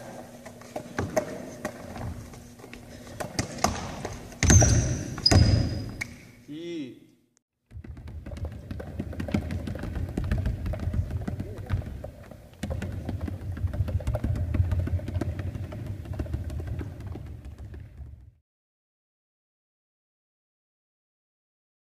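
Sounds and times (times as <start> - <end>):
basketball bouncing on wooden floor: 0.8 - 2.4, 3.0 - 6.1, 7.7 - 18.4.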